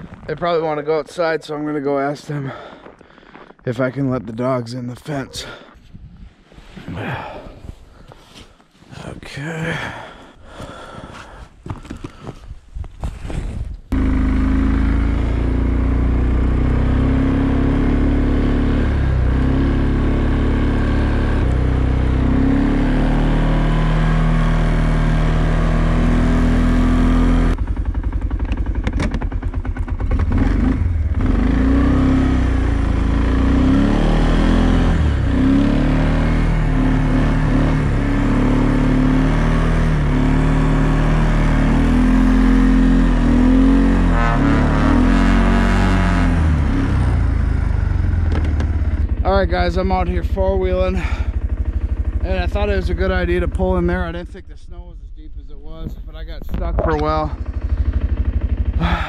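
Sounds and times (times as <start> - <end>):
atv engine revving: 13.9 - 54.8, 55.6 - 59.0.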